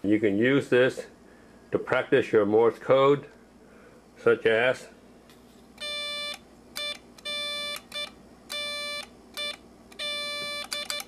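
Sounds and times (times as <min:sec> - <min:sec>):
buzzy morse code beeps: 0:05.8 - 0:11.0.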